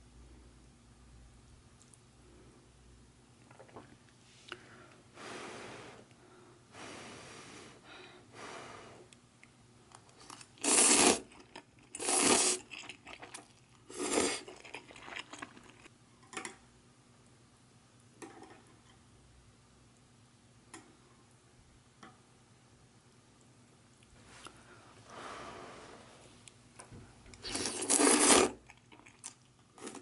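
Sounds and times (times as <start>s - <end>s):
person slurping noodles: 10.6s - 11.3s, 11.9s - 12.8s, 13.9s - 15.3s, 27.4s - 28.6s.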